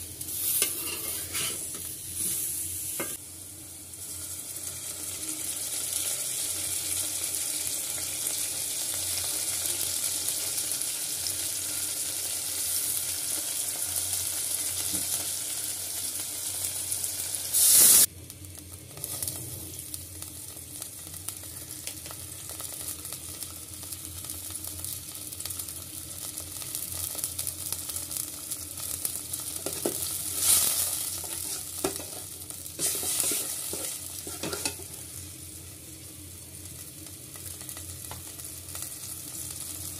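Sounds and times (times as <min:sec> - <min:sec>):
onions sizzling in oil: 0:00.0 - 0:39.9
metal spatula stirring in pot: 0:00.4 - 0:02.4, 0:31.2 - 0:34.9.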